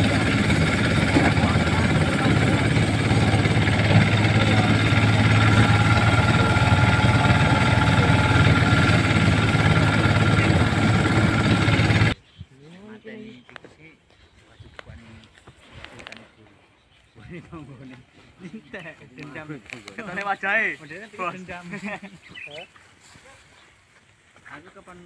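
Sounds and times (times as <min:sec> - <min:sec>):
rice thresher engine drone: 0:00.0 - 0:12.2.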